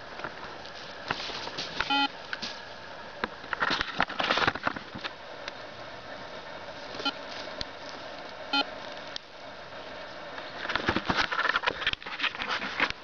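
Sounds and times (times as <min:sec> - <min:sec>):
rustling and handling noise: 0:00.0 - 0:05.2, 0:06.7 - 0:13.0
metal detector beep: 0:01.8 - 0:02.2, 0:07.0 - 0:07.2, 0:08.5 - 0:08.7.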